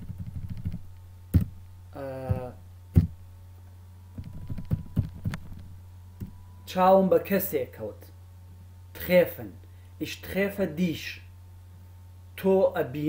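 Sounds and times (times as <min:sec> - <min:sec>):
keyboard typing: 0:00.0 - 0:00.8, 0:04.2 - 0:05.6
steady low hum: 0:00.0 - 0:13.0
brief vocal hum: 0:01.9 - 0:02.6.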